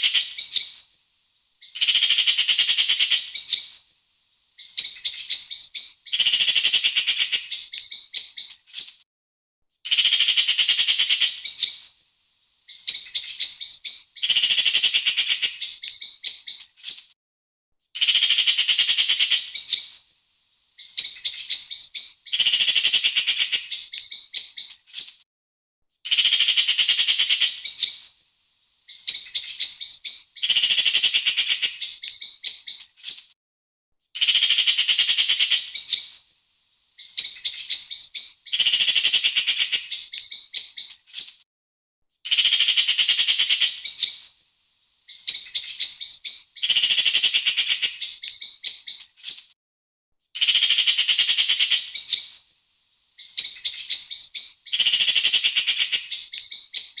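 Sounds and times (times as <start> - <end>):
magpie chattering: 1.6 - 3.8, 4.6 - 8.9, 9.9 - 11.8, 18.0 - 20.0, 26.1 - 28.1, 28.9 - 32.8, 34.2 - 36.2, 37.0 - 40.9, 42.3 - 44.3, 50.4 - 52.4, 53.2 - 57.0.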